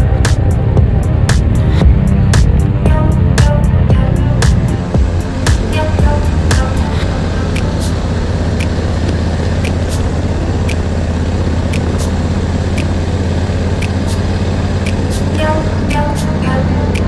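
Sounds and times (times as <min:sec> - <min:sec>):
motorcycle engine running: 0:00.0 - 0:17.0
sharp irregular ticks: 0:00.0 - 0:17.0.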